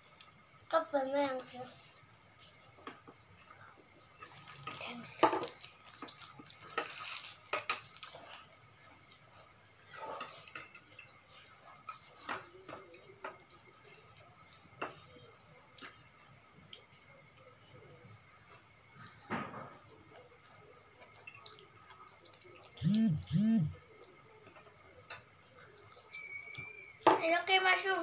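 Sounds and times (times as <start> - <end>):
forks clicking against plates: 10.2 - 11.2, 21.0 - 22.8.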